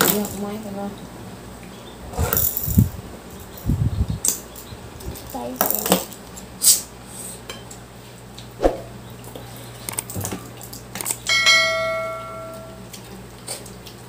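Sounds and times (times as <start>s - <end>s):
bell-like ring: 11.3s - 12.8s.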